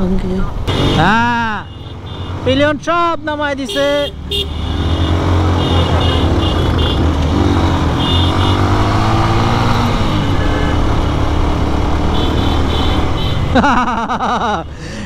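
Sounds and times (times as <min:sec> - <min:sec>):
other motorcycle engines: 0:00.0 - 0:15.0
motorcycle engine revving: 0:04.1 - 0:13.8.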